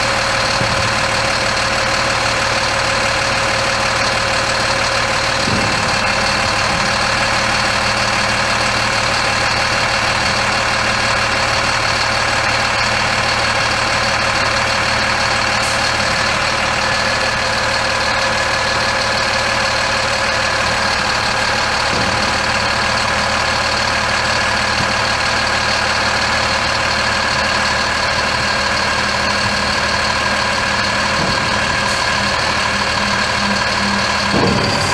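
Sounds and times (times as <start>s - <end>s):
diesel truck engine idling: 0.0s - 34.9s.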